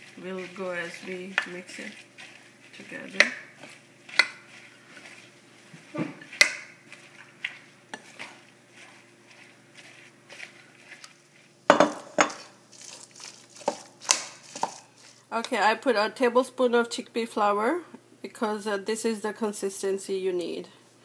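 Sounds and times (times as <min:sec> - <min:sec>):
spoon scraping glass bowl: 0:00.0 - 0:05.3.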